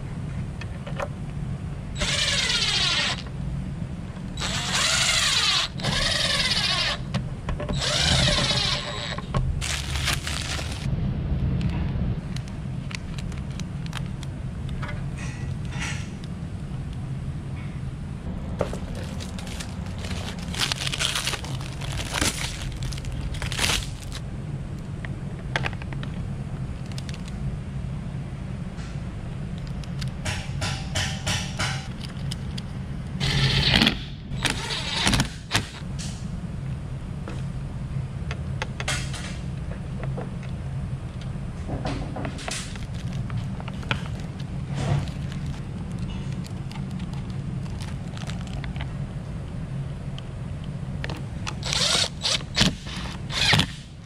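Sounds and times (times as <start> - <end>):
steady low hum: 0.0 - 54.0
clicks and knocks of parts: 29.6 - 32.7.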